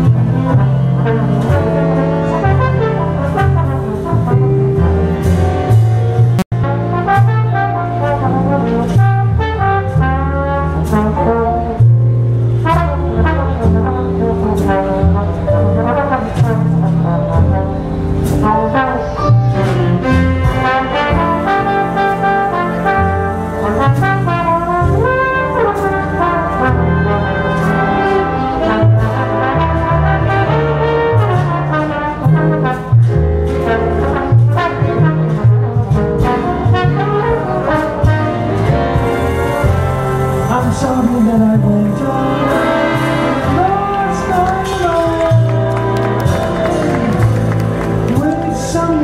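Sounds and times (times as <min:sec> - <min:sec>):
bass line: 0:00.0 - 0:49.0
big band accompaniment: 0:00.0 - 0:49.0
jazz trombone solo: 0:00.0 - 0:49.0.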